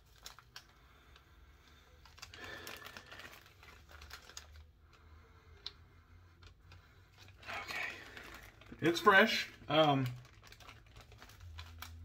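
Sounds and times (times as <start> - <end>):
plastic bag crinkling: 0.0 - 5.7, 6.4 - 12.0.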